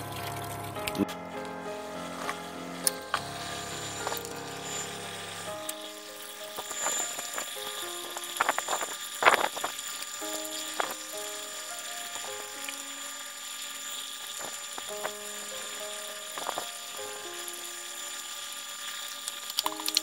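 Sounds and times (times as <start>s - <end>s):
slow melody of held notes: 0.0s - 9.0s, 10.1s - 13.2s, 14.8s - 18.4s, 19.6s - 20.0s
faint steady hiss: 3.7s - 20.0s.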